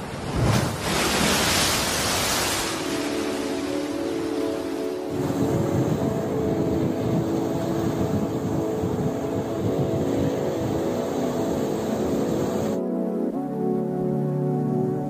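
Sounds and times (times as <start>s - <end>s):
surf breaking on beach: 0.0s - 12.8s.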